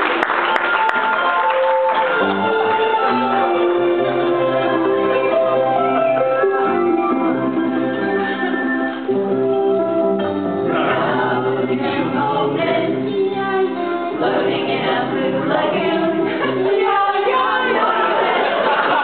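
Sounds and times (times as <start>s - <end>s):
mixed choir singing: 10.6s - 19.0s.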